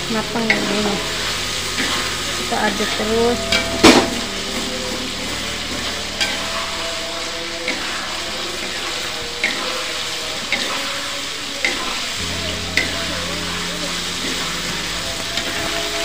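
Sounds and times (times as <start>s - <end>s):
paste sizzling in oil: 0.0s - 16.0s
metal ladle scraping a wok: 0.4s - 13.0s.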